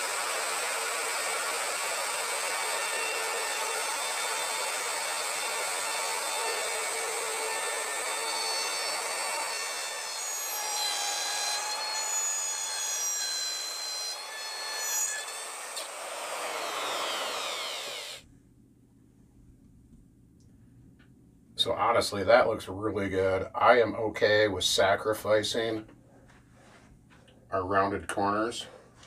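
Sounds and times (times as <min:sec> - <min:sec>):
router whining cutting wood: 0:00.0 - 0:18.2.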